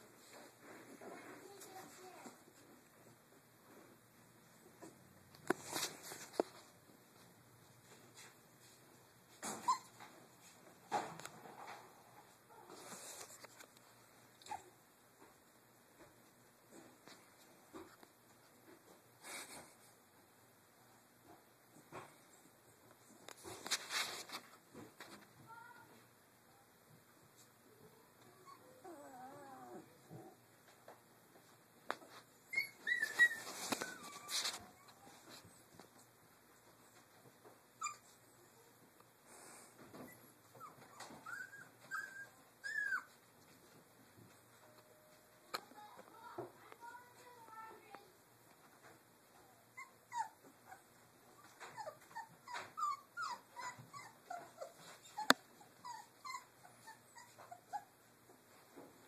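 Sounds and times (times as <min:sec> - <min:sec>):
rustling: 0:00.0 - 0:14.6, 0:22.0 - 0:26.1, 0:29.7 - 0:44.8
puppy whining: 0:09.4 - 0:10.1, 0:14.4 - 0:14.8, 0:28.1 - 0:30.4, 0:32.4 - 0:35.7, 0:37.8 - 0:38.7, 0:39.4 - 0:43.2, 0:49.3 - 0:58.4
puppies squeaking: 0:09.5 - 0:10.0, 0:32.4 - 0:35.1, 0:37.8 - 0:38.2, 0:40.1 - 0:43.1, 0:49.8 - 0:57.9.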